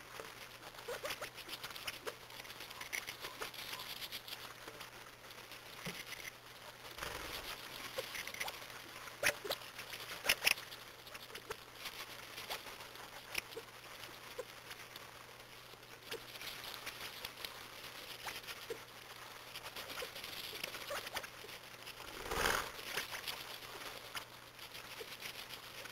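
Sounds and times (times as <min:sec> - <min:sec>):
quail pecking and scratching: 0:00.0 - 0:25.9
rustle: 0:00.0 - 0:25.9.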